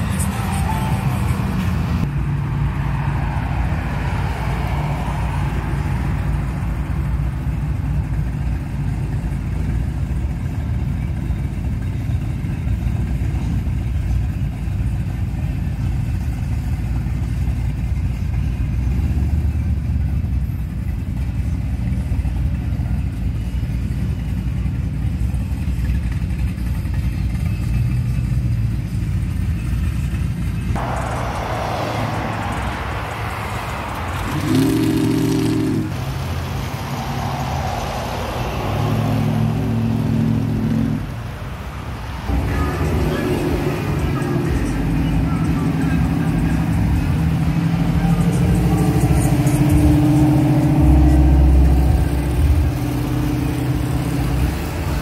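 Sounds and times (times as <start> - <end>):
traffic rumble: 0.0 - 55.0.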